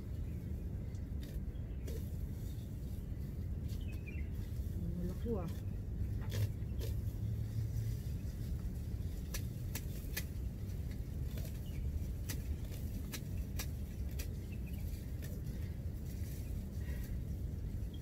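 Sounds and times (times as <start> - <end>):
steady low rumble: 0.0 - 18.0
grass stems snapping: 5.5 - 7.1, 9.0 - 15.6.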